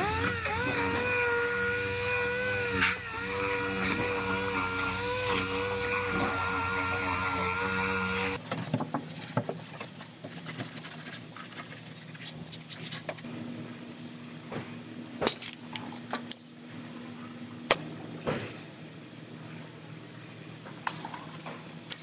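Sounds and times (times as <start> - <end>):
air sander whining: 0.0 - 8.4.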